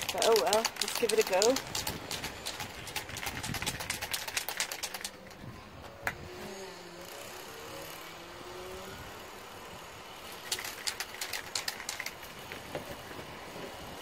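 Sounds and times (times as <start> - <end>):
spray can rattling: 0.0 - 5.4, 10.4 - 12.7
outdoor background hum: 0.0 - 14.0.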